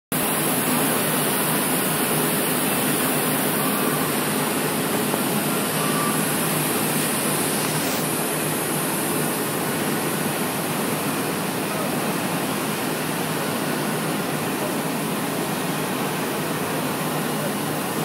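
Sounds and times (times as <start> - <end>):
foundry machinery roar: 0.2 - 18.0.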